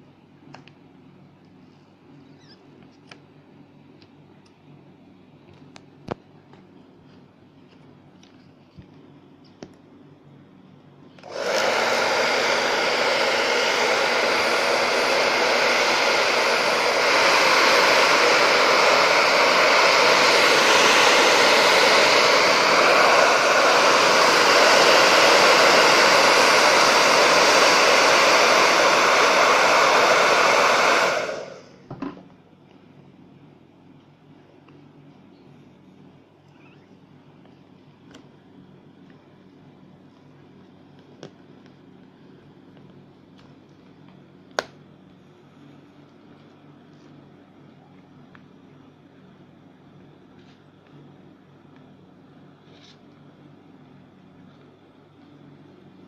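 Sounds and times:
hot-air blower running: 0:11.2 - 0:31.9.

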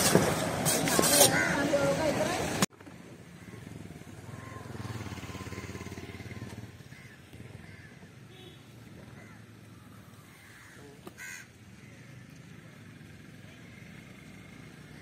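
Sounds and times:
passing vehicle engine hum: 0:03.4 - 0:10.4.

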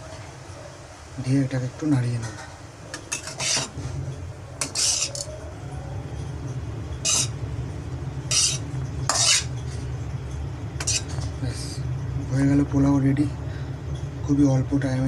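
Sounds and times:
steady low hum: 0:00.0 - 0:15.0
metal spatula scraping a pan: 0:02.3 - 0:03.9, 0:04.6 - 0:05.3, 0:07.0 - 0:07.4, 0:08.3 - 0:09.9, 0:10.8 - 0:11.3.

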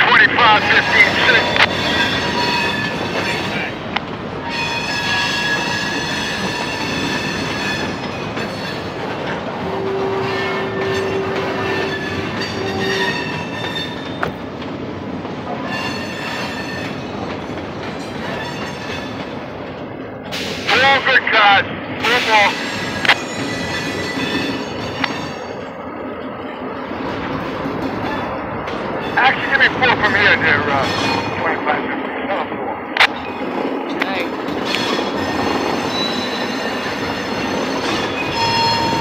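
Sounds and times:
train wheels rumbling on rail: 0:00.0 - 0:39.0
high-pitched wheel squeal: 0:10.0 - 0:14.1, 0:34.7 - 0:39.0.

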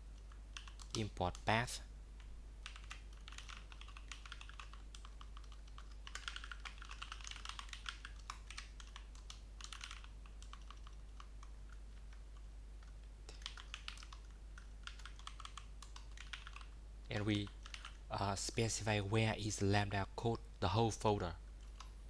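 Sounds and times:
keyboard typing clicks: 0:02.6 - 0:11.5, 0:12.1 - 0:16.7.

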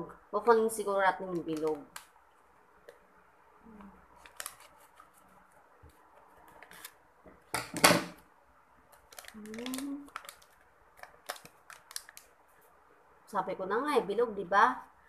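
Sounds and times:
plastic packet crinkling: 0:01.2 - 0:02.1, 0:04.1 - 0:05.2, 0:08.9 - 0:12.4.

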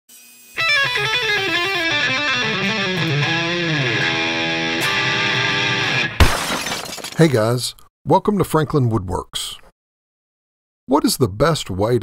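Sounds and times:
electric guitar music: 0:00.6 - 0:06.2.

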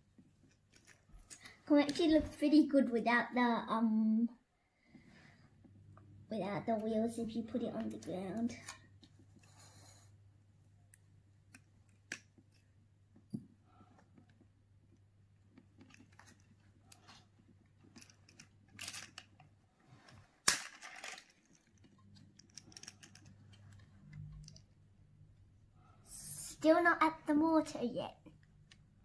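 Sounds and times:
faint clicks and scrapes: 0:00.1 - 0:02.2, 0:07.8 - 0:10.2, 0:10.9 - 0:24.8.

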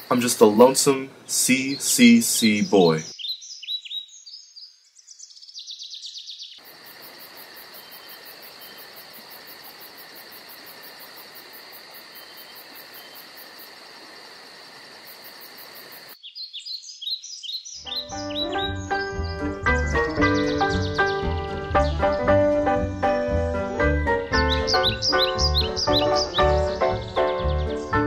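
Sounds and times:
steady hiss: 0:00.0 - 0:03.1
birds chirping: 0:00.0 - 0:10.4, 0:15.2 - 0:28.0
crickets chirping: 0:00.0 - 0:19.1, 0:23.0 - 0:27.9.

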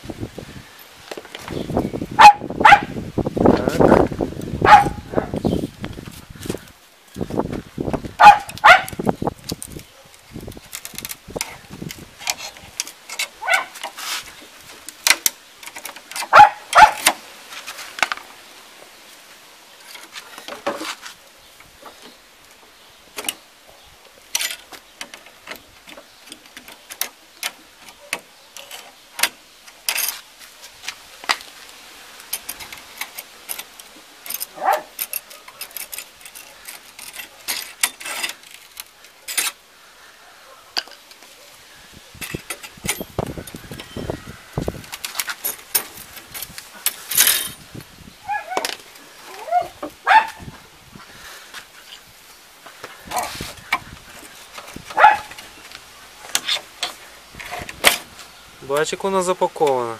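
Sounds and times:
dog barking: 0:02.2 - 0:03.0, 0:04.6 - 0:05.3, 0:08.2 - 0:08.9, 0:13.4 - 0:13.8, 0:16.3 - 0:17.0, 0:34.6 - 0:35.0, 0:49.5 - 0:50.4, 0:55.0 - 0:55.3
snips cutting steel straps: 0:08.3 - 0:17.2, 0:32.2 - 0:39.6.

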